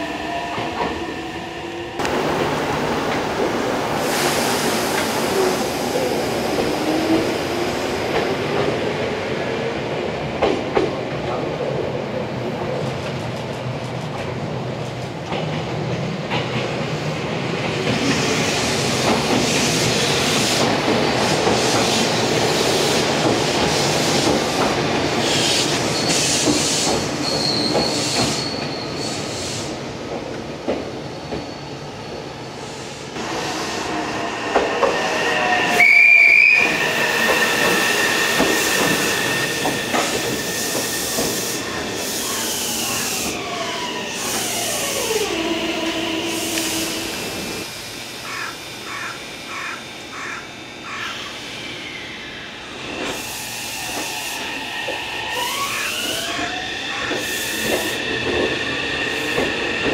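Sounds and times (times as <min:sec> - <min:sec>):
train wheels clattering on rails: 0:10.3 - 0:11.4, 0:12.8 - 0:31.6, 0:34.4 - 0:35.1, 0:36.5 - 0:42.5, 0:53.9 - 0:59.9
high wheel squeals: 0:27.2 - 0:29.4.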